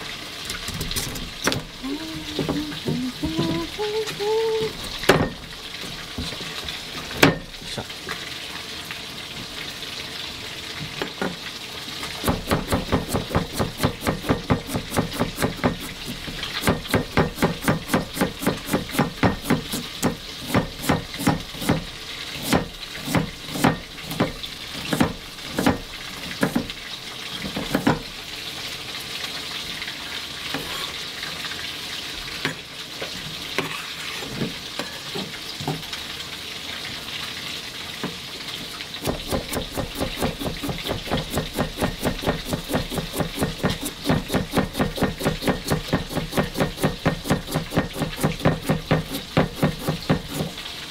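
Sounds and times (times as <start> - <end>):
knife chopping on wooden board: 12.2 - 26.7, 27.5 - 28.1, 39.0 - 50.5.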